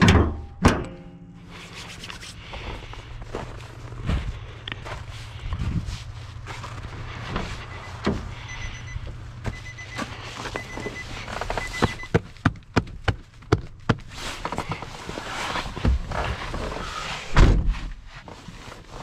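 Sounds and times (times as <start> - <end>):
handling noise: 2.4 - 16.8
warning chime beeping: 7.6 - 12.1
heavy door thud: 17.3 - 17.8.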